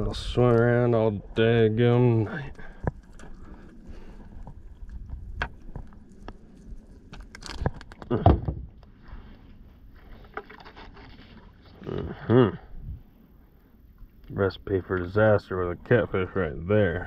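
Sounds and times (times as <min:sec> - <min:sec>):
clicks and rustles of handling gear: 0:04.5 - 0:08.1
thump in aluminium boat: 0:08.1 - 0:08.7.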